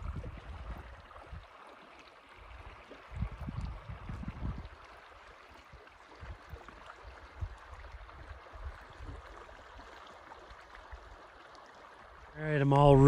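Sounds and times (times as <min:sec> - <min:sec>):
wind rumble on microphone: 0:00.0 - 0:01.6, 0:02.4 - 0:05.0, 0:05.8 - 0:09.4
flowing river water: 0:00.0 - 0:13.0.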